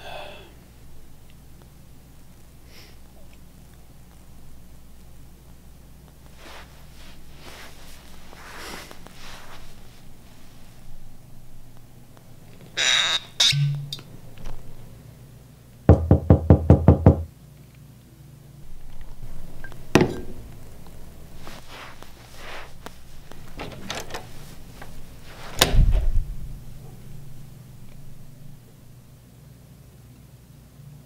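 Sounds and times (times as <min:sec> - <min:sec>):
heavy thump: 0:19.9 - 0:20.7, 0:23.4 - 0:28.6.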